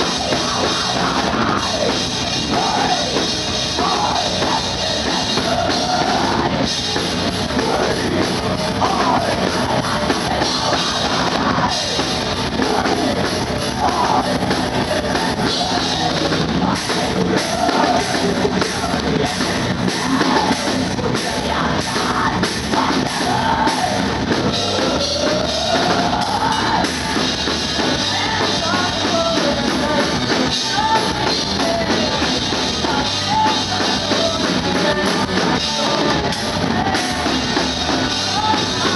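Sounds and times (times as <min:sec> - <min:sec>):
drum kit: 0:00.0 - 0:38.9
electric guitar: 0:00.0 - 0:38.9
woman singing: 0:27.9 - 0:38.9.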